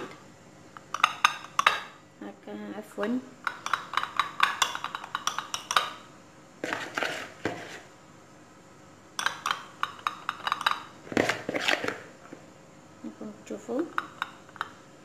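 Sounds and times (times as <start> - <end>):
spoon clinking on ceramic plate: 1.0 - 1.9, 3.5 - 6.0, 9.2 - 10.9
spoon scraping ceramic: 6.6 - 7.8, 9.2 - 12.0.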